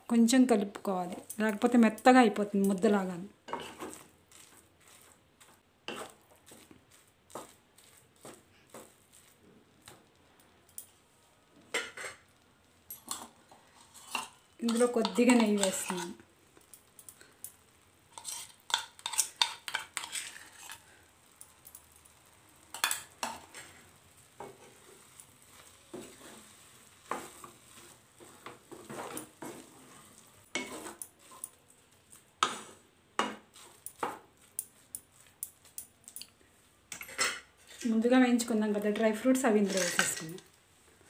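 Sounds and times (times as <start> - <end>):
metal spatula scraping a pan: 3.5 - 9.4, 11.7 - 12.4, 13.0 - 16.2, 18.1 - 21.0, 22.7 - 34.2, 36.9 - 38.1, 39.0 - 40.4.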